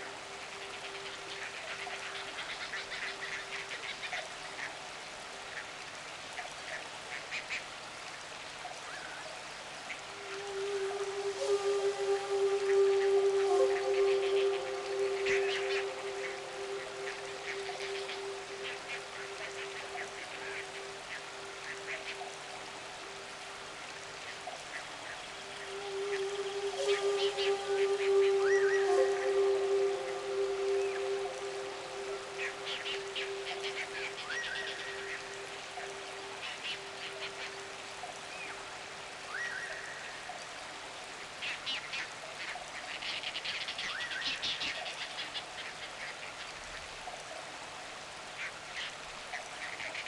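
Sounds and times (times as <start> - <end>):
faint watery hiss: 0.0 - 50.0
held synth note: 10.3 - 20.8, 25.6 - 37.0.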